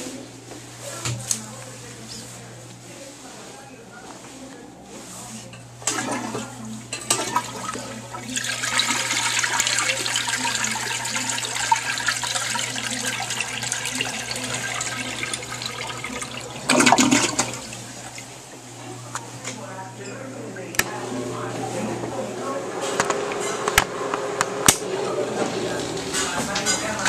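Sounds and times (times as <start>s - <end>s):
toilet flushing: 5.8s - 18.5s.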